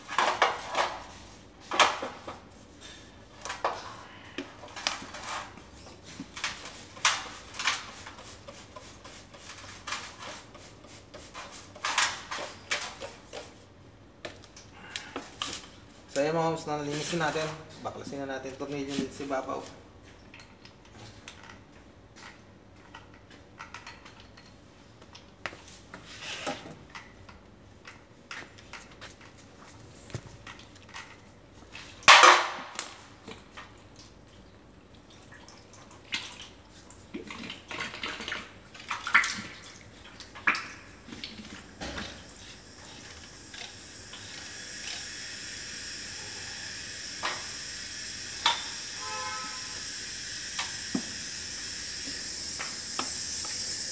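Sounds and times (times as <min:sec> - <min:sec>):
steady hiss: 0:40.9 - 0:53.9.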